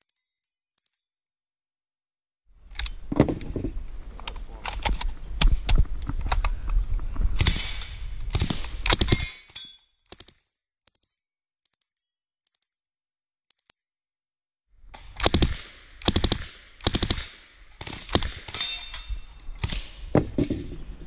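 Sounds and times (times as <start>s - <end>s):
rustling and bumping on microphone: 3.0s - 3.9s, 20.1s - 21.0s
sharp metallic clicks and clacks: 7.4s - 13.9s, 14.9s - 20.0s.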